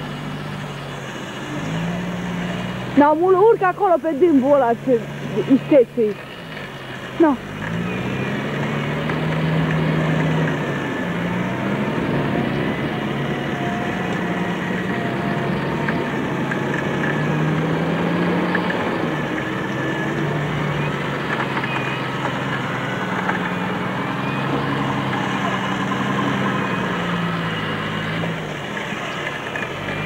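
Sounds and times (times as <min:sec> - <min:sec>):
engine running under load: 0:00.0 - 0:30.0.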